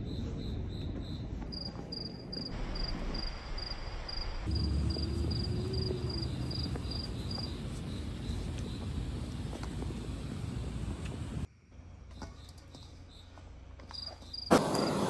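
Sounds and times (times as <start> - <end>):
higher-pitched cricket chirping: 0.0 - 8.8, 13.9 - 14.9
crickets chirping: 0.0 - 11.5, 12.1 - 15.0
low outdoor rumble: 2.6 - 12.1.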